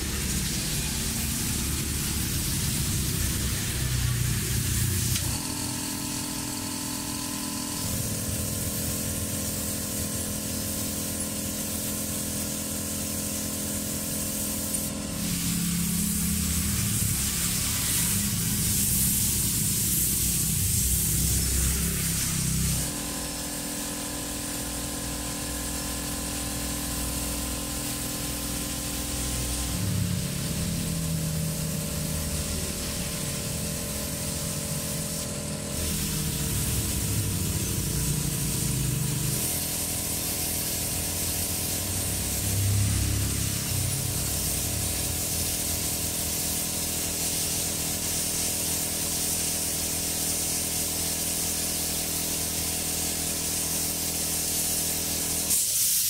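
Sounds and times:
spray paint can hissing: 0:00.0 - 0:56.0.

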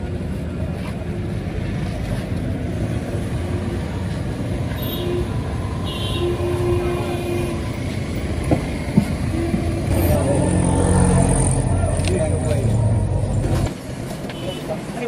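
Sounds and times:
street traffic rumble: 0:00.0 - 0:15.0.

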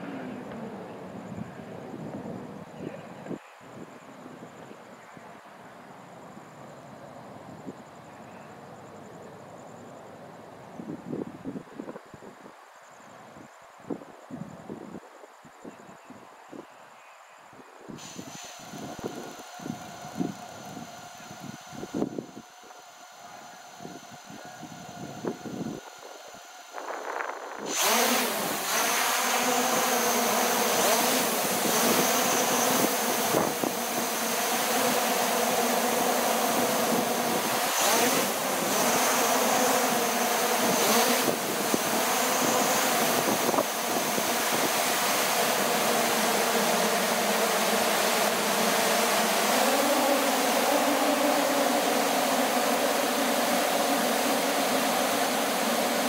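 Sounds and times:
loud rushing noise: 0:18.0 - 0:29.5
motor humming: 0:18.0 - 0:56.0.

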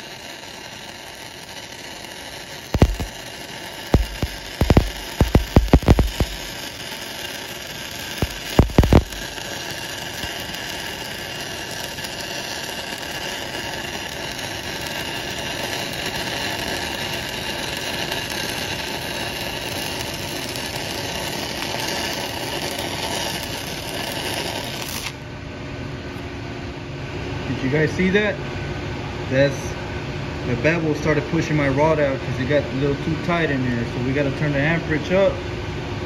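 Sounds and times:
welding arc crackling and hissing: 0:00.0 - 0:25.2
sharp arc strike cracks: 0:02.8 - 0:03.2, 0:03.9 - 0:06.6, 0:08.2 - 0:09.3.

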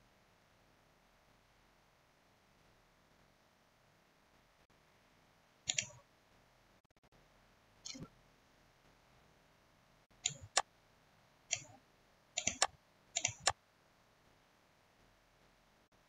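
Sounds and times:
computer mouse clicking: 0:05.7 - 0:06.0, 0:10.2 - 0:10.7, 0:11.5 - 0:11.8, 0:12.4 - 0:13.6.

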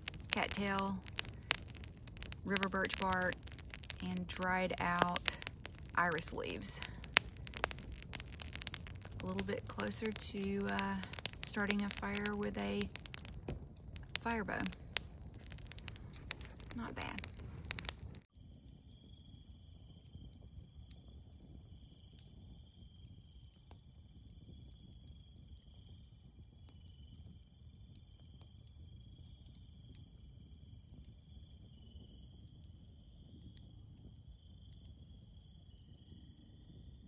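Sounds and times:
night insects trilling: 0:00.0 - 0:18.1
campfire crackling: 0:00.0 - 0:31.7, 0:32.5 - 0:37.0.

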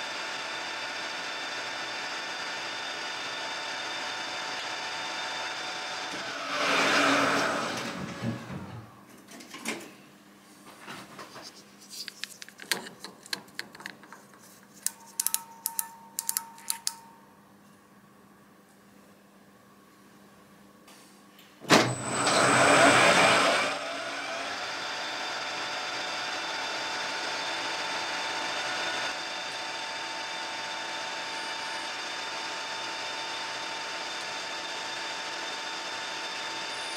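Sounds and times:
clicks and taps of handling: 0:12.0 - 0:17.0
sharp clicks: 0:14.8 - 0:17.1
metal lathe running: 0:21.9 - 0:36.9.

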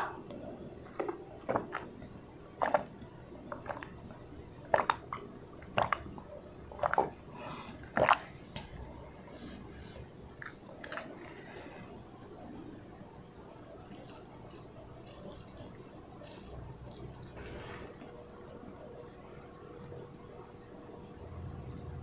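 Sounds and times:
wet mouth sounds: 0:00.0 - 0:04.0, 0:04.6 - 0:07.2, 0:07.8 - 0:08.8
gulping and swallowing water: 0:00.0 - 0:08.9, 0:10.0 - 0:11.7, 0:13.9 - 0:17.4.

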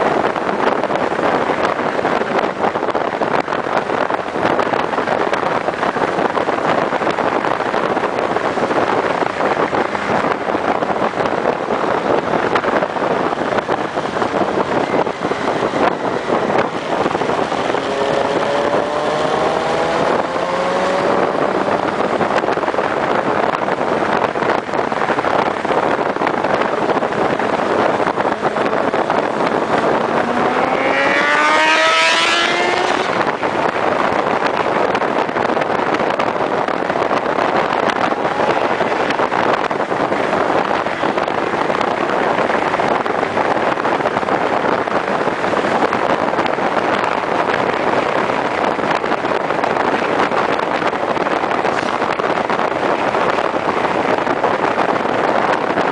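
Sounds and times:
wind rush on microphone: 0:00.0 - 0:55.9
motorcycle engine revving: 0:14.6 - 0:22.8, 0:27.4 - 0:33.6.

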